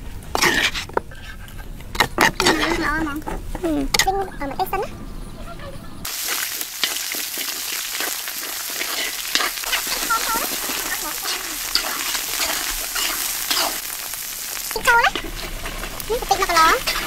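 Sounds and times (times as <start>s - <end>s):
metal ladle scraping a wok: 0.3s - 3.0s, 6.1s - 17.0s
onions sizzling in hot oil: 6.0s - 17.0s.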